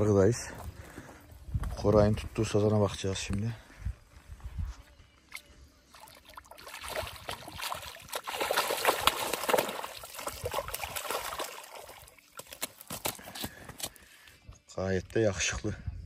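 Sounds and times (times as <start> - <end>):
water sloshing and splashing: 5.8 - 13.4.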